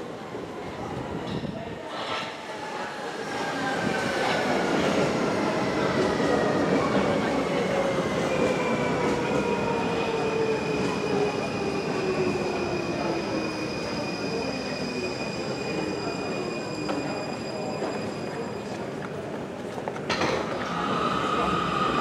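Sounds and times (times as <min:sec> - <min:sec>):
train braking: 0:01.8 - 0:19.0.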